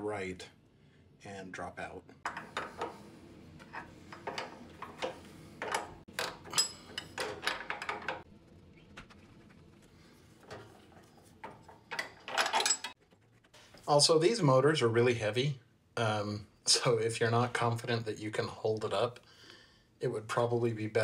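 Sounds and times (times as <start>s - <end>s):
metallic clicks clanks and rattles: 3.6s - 8.3s, 11.4s - 13.0s.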